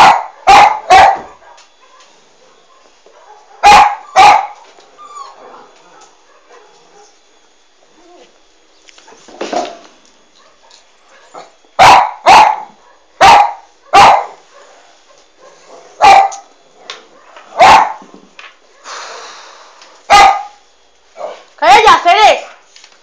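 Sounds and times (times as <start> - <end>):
dog barking: 0.0 - 4.6, 5.9 - 7.2, 10.4 - 16.5, 17.1 - 18.0, 20.1 - 20.6.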